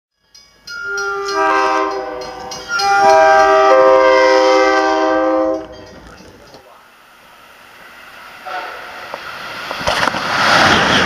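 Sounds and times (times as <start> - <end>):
train air horn blasts: 0.8 - 5.8, 8.4 - 9.0.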